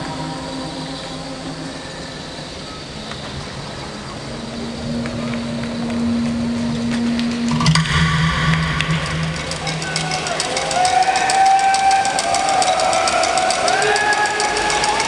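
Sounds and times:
held low note: 0.0s - 11.6s
low rumbling noise: 0.0s - 12.9s.

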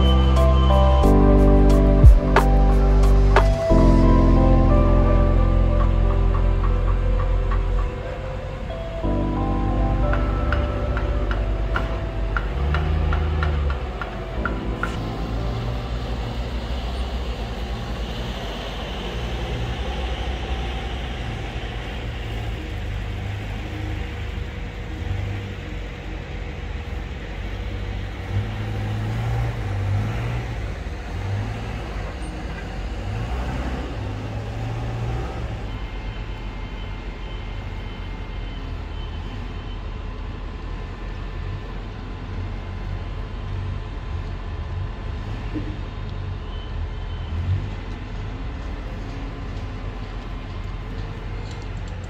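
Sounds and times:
faint steady tones: 0.0s - 31.2s
construction site rumble: 0.0s - 52.0s.

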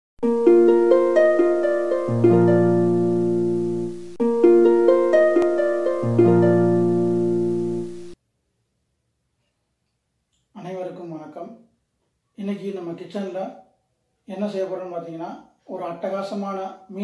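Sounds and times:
plucked intro music: 0.2s - 8.2s.

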